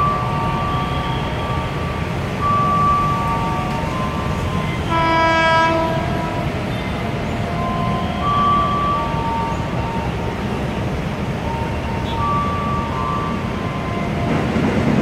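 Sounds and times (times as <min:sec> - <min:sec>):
electric train horn: 0:02.4 - 0:09.8, 0:12.0 - 0:14.2.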